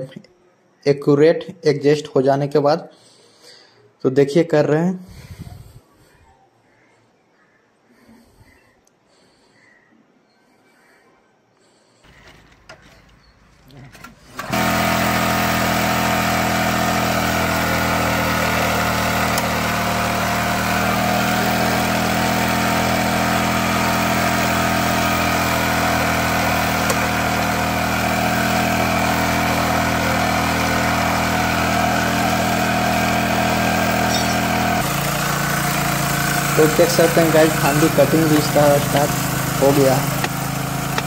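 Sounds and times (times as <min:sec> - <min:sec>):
rail saw engine running: 0:12.0 - 0:41.0.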